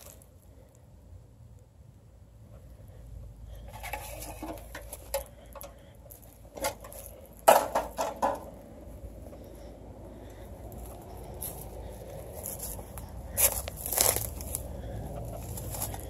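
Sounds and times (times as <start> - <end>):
footsteps crunching through dry brush: 6.1 - 7.5, 10.5 - 16.0.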